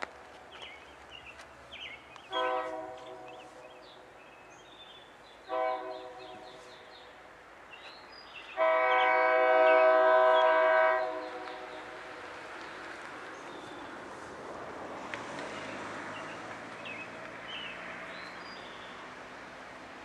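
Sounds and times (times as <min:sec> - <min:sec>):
locomotive air horn chord blasts: 0:02.3 - 0:03.6, 0:05.5 - 0:06.8, 0:08.6 - 0:11.7.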